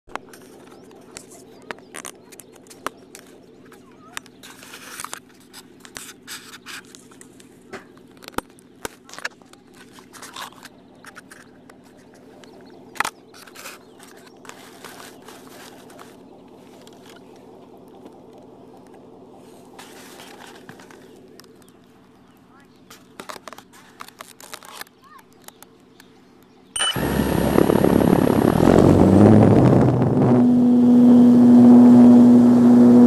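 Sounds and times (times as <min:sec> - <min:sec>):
handling clicks and scrapes: 0:00.1 - 0:18.1, 0:19.5 - 0:26.2
steady low hum: 0:00.1 - 0:24.0, 0:25.6 - 0:33.0.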